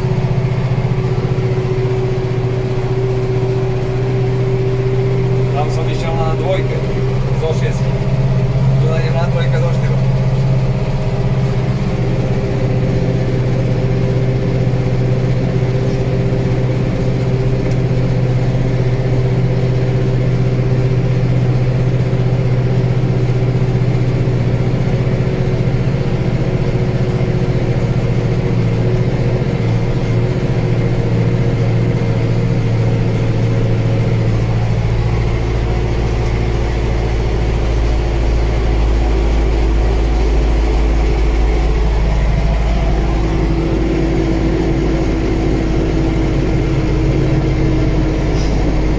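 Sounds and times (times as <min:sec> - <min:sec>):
diesel tractor engine under load: 0:00.0 - 0:48.9.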